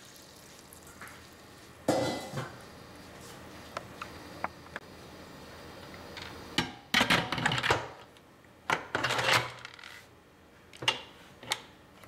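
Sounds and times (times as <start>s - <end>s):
metal lid clattering and scraping: 1.9s - 2.6s.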